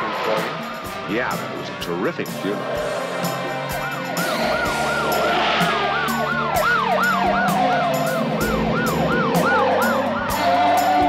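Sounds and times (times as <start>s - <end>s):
police siren yelping: 2.5s - 11.0s
slower siren tone sliding down: 2.9s - 11.0s.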